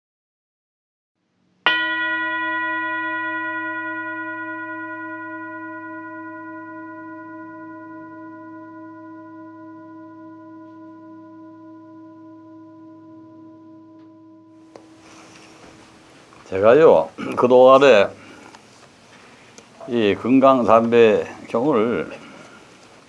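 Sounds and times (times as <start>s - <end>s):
singing bowl ringing: 1.7s - 16.6s.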